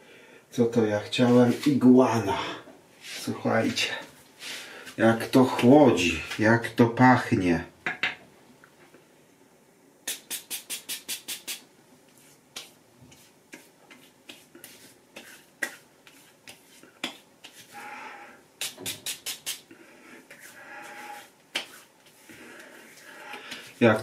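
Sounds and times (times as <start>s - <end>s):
hands slapping skin: 10.1s - 11.6s, 12.5s - 17.7s, 18.6s - 19.7s, 21.4s - 22.7s
breathy sounds: 22.2s - 23.8s.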